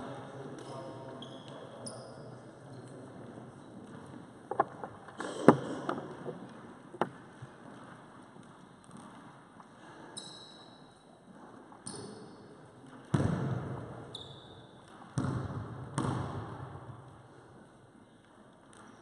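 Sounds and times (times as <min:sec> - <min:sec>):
basketball bouncing on wooden floor: 0:13.0 - 0:14.0, 0:14.9 - 0:17.0.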